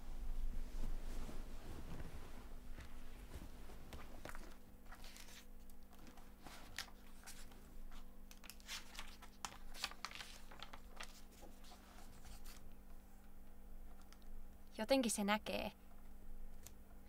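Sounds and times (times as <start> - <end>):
faint electrical hum: 0.0 - 17.0
book pages rustling: 0.8 - 12.7.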